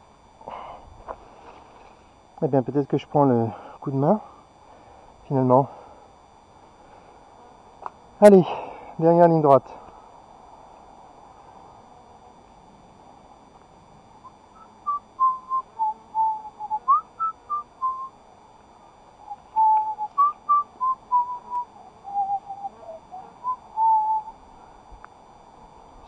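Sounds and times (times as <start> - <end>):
man whistling a tune: 14.5 - 18.1, 19.3 - 22.7, 23.4 - 24.4.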